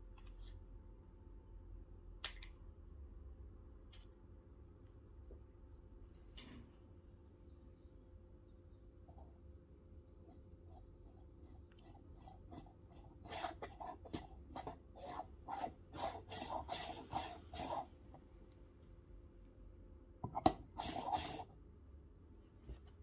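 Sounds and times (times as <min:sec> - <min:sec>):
scratchy rasping of coffee stirring: 0:10.3 - 0:17.9, 0:20.4 - 0:21.5.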